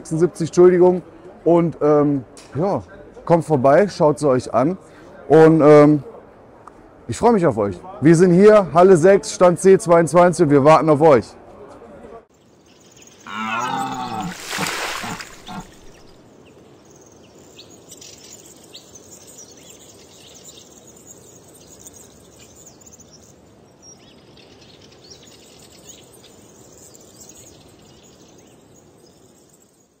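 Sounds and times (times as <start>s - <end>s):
bird chirps: 12.4s - 30.0s.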